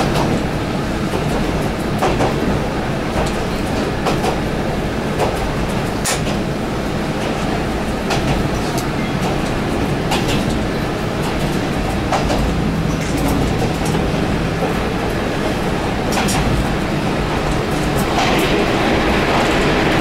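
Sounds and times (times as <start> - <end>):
railcar engine and wheels rumbling: 0.0 - 20.0
wheels clacking over rail joints: 7.2 - 20.0.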